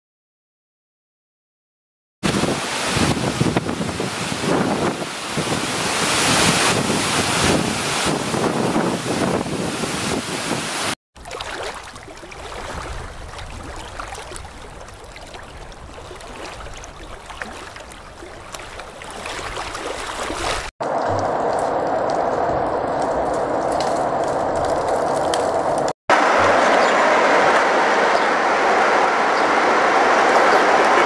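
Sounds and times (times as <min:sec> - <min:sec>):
waterfall rushing: 0:02.3 - 0:11.0, 0:26.1 - 0:31.0.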